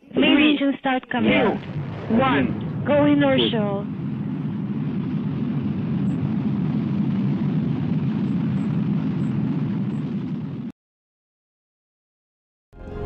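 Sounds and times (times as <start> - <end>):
low rumble of burning fireball: 1.2 - 10.7.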